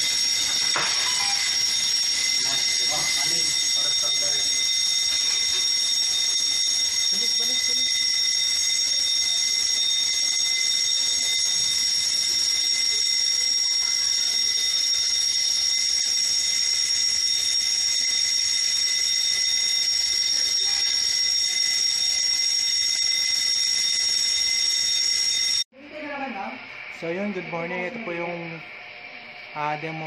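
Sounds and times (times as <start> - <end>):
fire alarm steady tone: 0.0 - 30.0.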